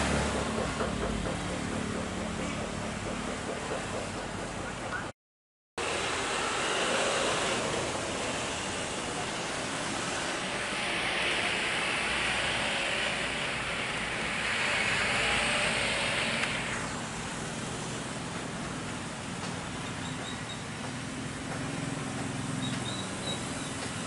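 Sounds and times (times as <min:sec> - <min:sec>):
jet airliner engines roaring: 0:05.8 - 0:19.5.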